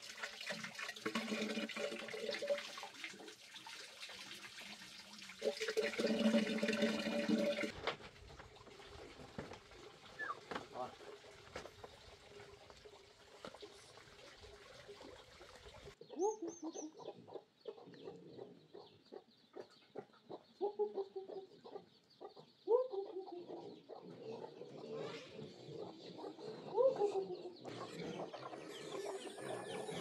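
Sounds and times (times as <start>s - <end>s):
chickens clucking: 16.0s - 30.0s.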